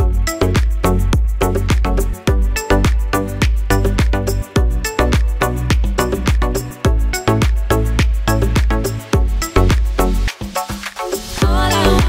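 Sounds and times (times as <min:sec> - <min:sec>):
music with drum beat and bass: 0:00.0 - 0:12.0.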